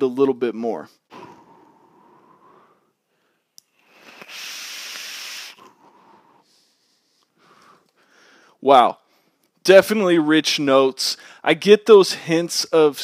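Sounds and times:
loud breathy exhale: 3.8s - 8.6s
airy hiss with whistle-like tone: 3.9s - 6.7s.

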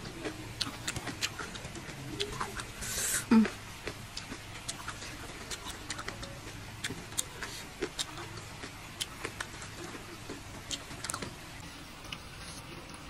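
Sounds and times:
chewing and wet mouth clicks: 0.2s - 2.8s, 3.4s - 11.4s.

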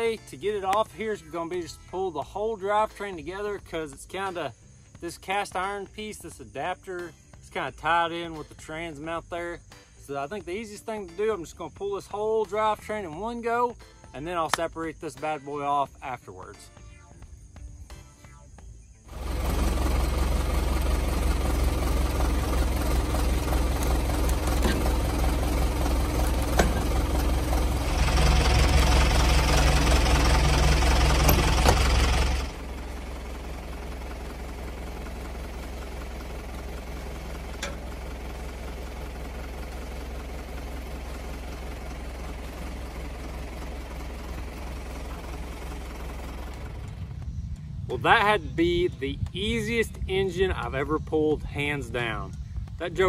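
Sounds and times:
engine running and revving: 19.1s - 47.5s.

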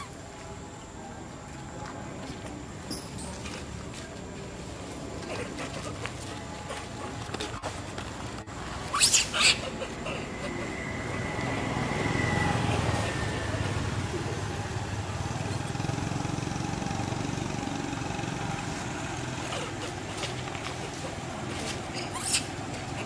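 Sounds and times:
vehicle engine running: 10.2s - 21.9s.

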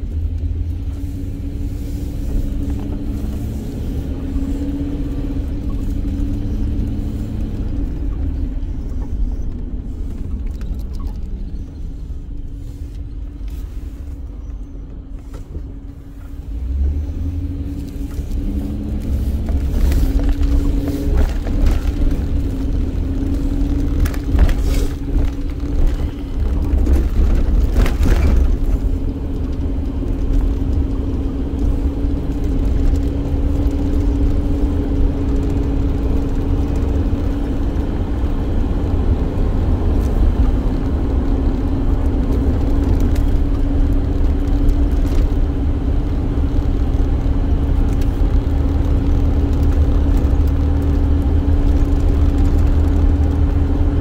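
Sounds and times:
van engine rumble: 0.0s - 54.0s.

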